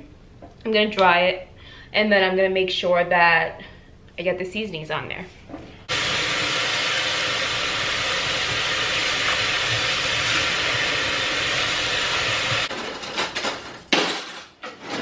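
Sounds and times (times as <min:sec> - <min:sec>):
tap water running into pot: 0:05.9 - 0:12.7
drawer opening: 0:14.4 - 0:15.0.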